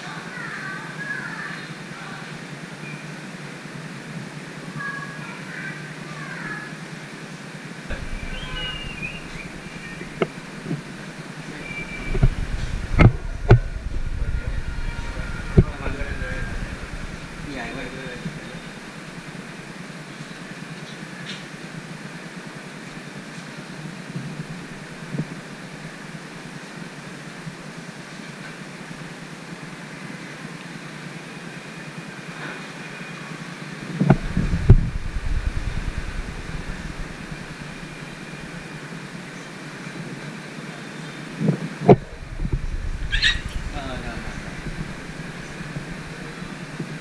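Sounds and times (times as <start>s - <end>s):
ventilation fan whirring: 0.0s - 47.0s
dull low thumps: 7.9s - 11.0s, 11.6s - 18.4s, 34.1s - 38.6s, 41.9s - 47.0s
faint steady tones: 7.9s - 19.7s, 34.0s - 39.1s, 41.9s - 47.0s.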